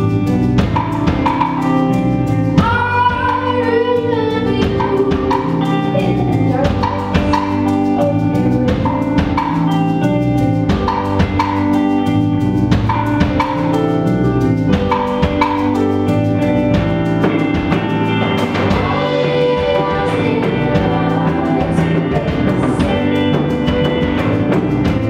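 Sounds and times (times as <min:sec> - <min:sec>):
bass guitar: 0:00.0 - 0:25.0
drum kit beat: 0:00.0 - 0:25.0
electric guitar: 0:00.0 - 0:25.0
keyboard: 0:00.0 - 0:25.0
women singing: 0:02.6 - 0:08.9, 0:18.7 - 0:24.7.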